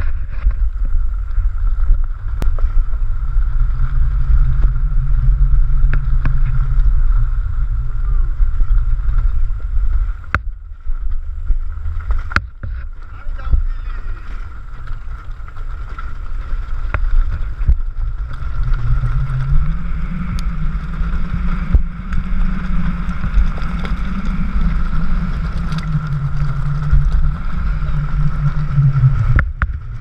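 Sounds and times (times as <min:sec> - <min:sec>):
high whine: 0:00.0 - 0:30.0
wind buffeting microphone: 0:00.0 - 0:30.0.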